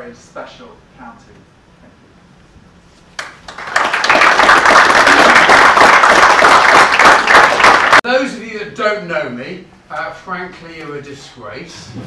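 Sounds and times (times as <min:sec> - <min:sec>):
audience applauding: 0:03.2 - 0:08.0.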